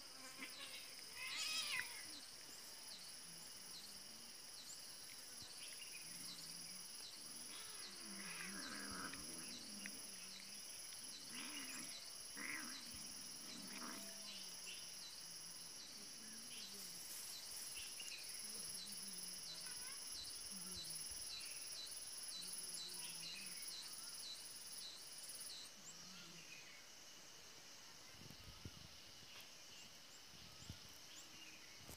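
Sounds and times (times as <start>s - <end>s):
faint insect chirring: 0.0s - 31.9s
low animal sounds: 6.0s - 14.8s.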